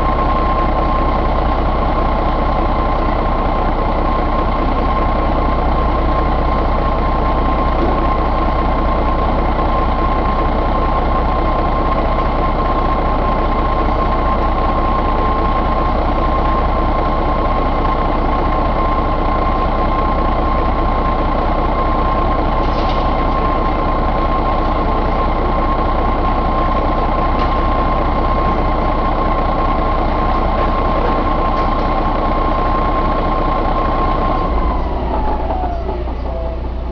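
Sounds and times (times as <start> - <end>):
diesel engine running: 0.0 - 36.9
constant high whine: 19.6 - 36.9.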